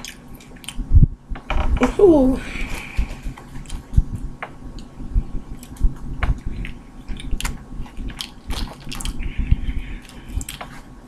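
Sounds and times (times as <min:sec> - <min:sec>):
wet chewing and biting: 0:03.3 - 0:04.9, 0:05.5 - 0:10.9.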